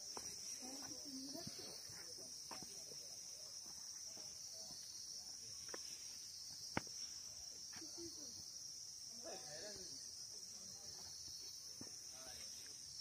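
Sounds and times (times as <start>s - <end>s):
insects droning high-pitched: 0.0s - 13.0s.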